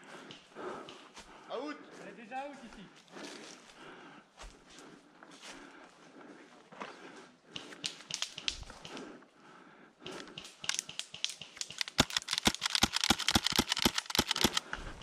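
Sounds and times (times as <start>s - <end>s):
airsoft pistol clacks: 7.5s - 9.0s, 10.0s - 14.9s.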